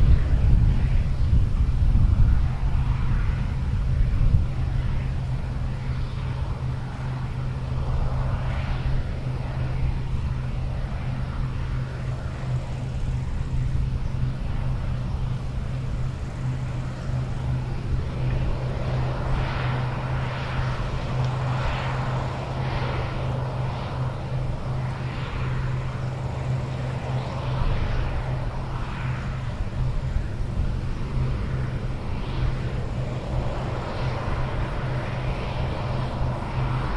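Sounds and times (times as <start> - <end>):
combine harvester engine drone: 0.0 - 36.9.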